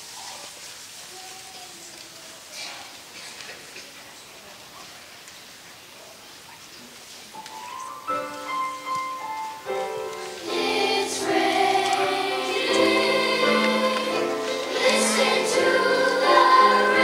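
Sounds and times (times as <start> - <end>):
children's choir singing: 9.6 - 17.0.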